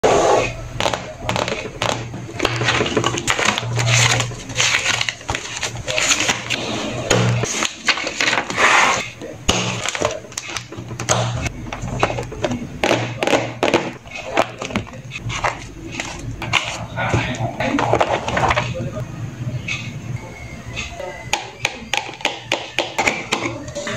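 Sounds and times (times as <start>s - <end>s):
plastic and paper crinkling: 0.8s - 11.1s, 11.8s - 18.9s.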